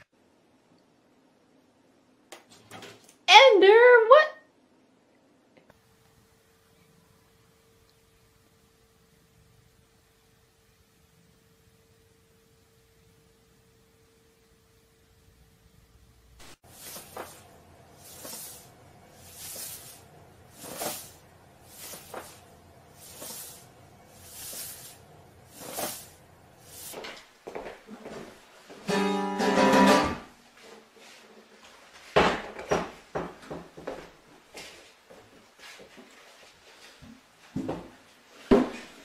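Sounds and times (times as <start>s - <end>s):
acoustic guitar strumming: 28.8s - 30.3s.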